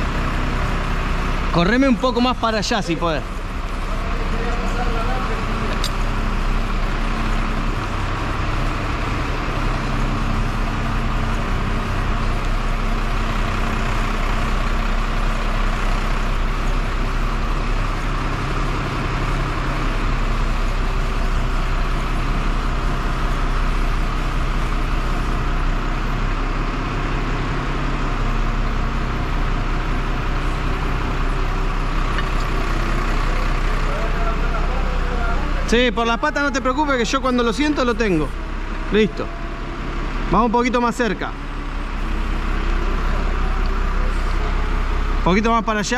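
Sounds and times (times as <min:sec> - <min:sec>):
truck engine running: 0:00.0 - 0:45.9.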